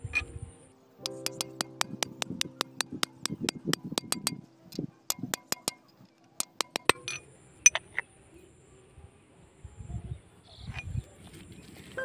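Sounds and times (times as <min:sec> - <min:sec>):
hammer tapping steel bar: 0:01.0 - 0:07.8.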